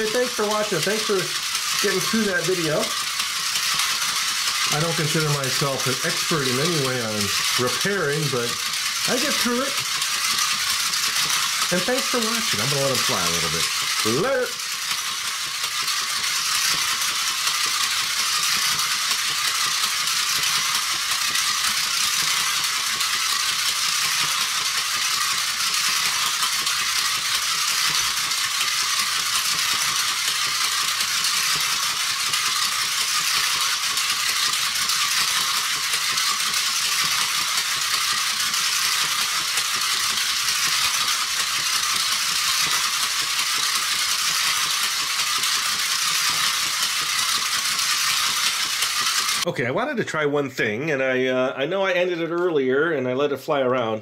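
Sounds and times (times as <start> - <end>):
toy motor mechanical rattle: 0.0 - 49.5.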